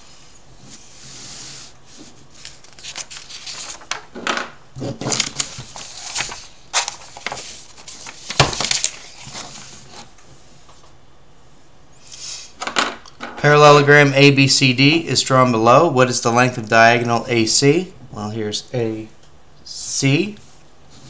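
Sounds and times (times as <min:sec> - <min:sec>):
paper rustling and crackling: 0:02.0 - 0:04.1, 0:04.8 - 0:10.2.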